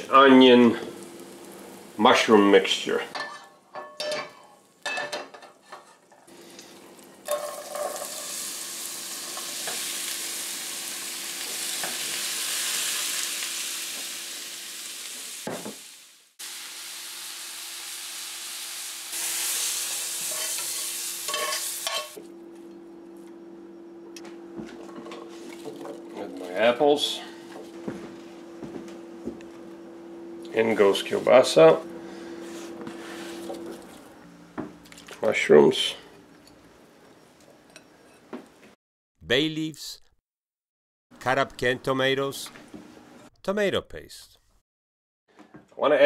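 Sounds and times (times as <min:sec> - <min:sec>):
vegetables sizzling in oil: 0:00.6 - 0:02.3, 0:06.3 - 0:22.2.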